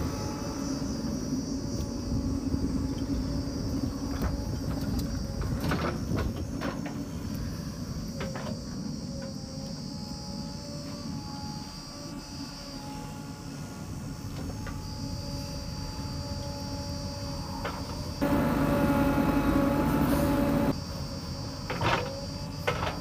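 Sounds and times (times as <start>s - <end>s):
high insect buzz: 0.0s - 23.0s
diesel engines running: 15.5s - 20.8s.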